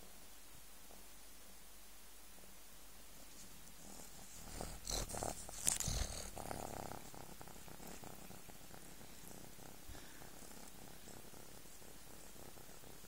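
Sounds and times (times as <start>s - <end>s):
kitten purring: 3.2s - 13.0s.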